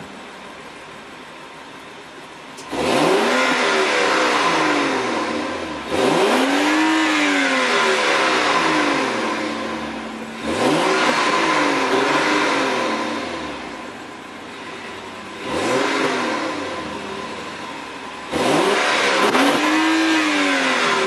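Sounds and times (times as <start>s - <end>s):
car engine idling and revving: 0.0s - 21.0s.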